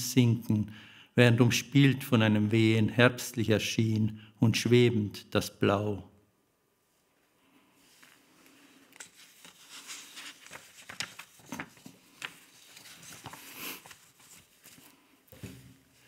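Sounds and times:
paper rustling: 7.9 - 16.0.

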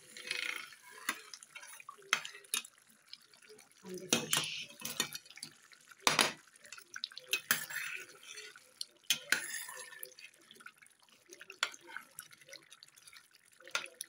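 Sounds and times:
wet stirring: 0.0 - 14.0.

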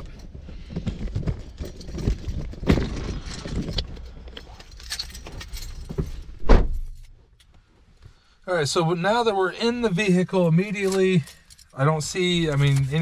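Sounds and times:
rustling handling noise: 0.0 - 8.2, 10.6 - 13.0
heavy thump: 5.9 - 7.0.

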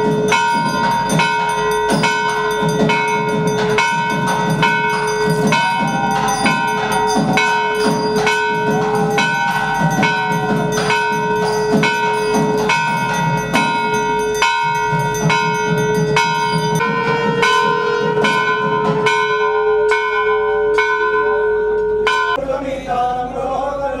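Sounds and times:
temple bell ringing: 0.0 - 22.4.

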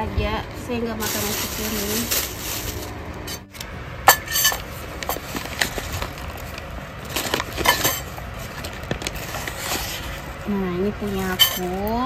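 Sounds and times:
paper wrapping crinkling: 1.0 - 3.5, 4.1 - 11.9
plates and spoon clinking: 4.1 - 5.3, 7.2 - 8.1, 11.1 - 11.8.

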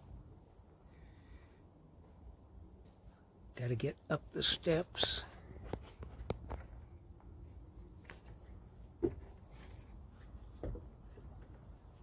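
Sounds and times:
footsteps on outdoor steps: 5.1 - 12.0.

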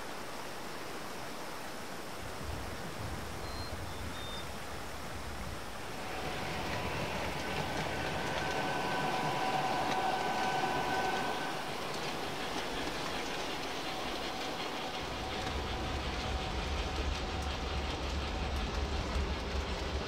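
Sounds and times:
model train rolling: 5.3 - 20.0.

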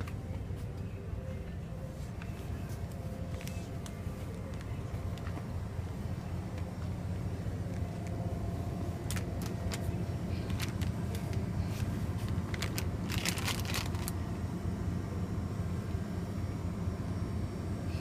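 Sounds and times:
steady low rumble: 0.0 - 18.0
plastic packaging rustling: 9.1 - 14.2.

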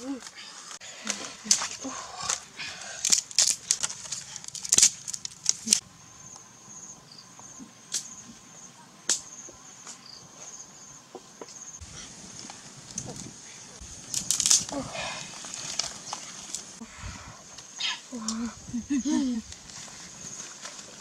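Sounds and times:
insect trilling: 0.0 - 19.5
dry sticks clacking: 3.0 - 5.8, 14.1 - 16.7.

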